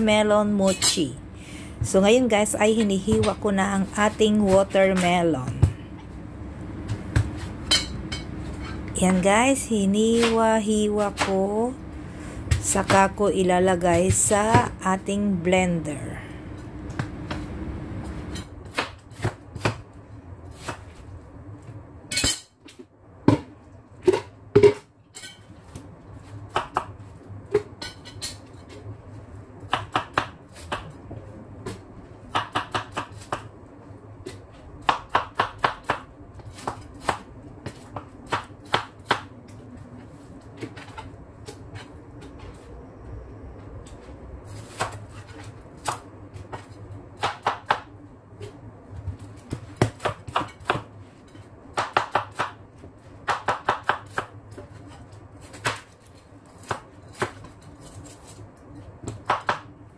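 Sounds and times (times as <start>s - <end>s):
knife chopping on cutting board: 32.3s - 33.5s.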